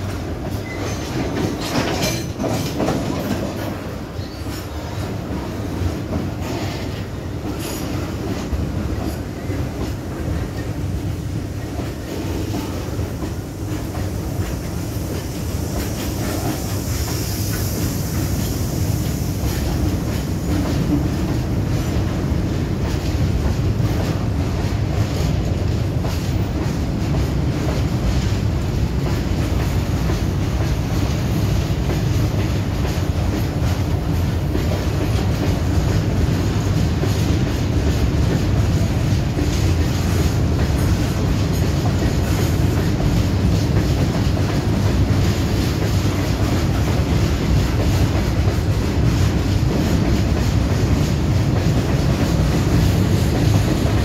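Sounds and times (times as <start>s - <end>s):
wheels clattering over rail joints: 0.0s - 4.7s
steel wheels rumbling on rails: 0.0s - 54.0s.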